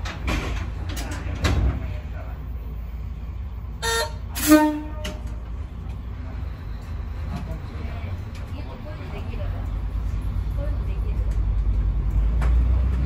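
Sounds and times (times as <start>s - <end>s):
railcar rumble: 0.0s - 13.0s
railcar horn: 3.8s - 5.4s.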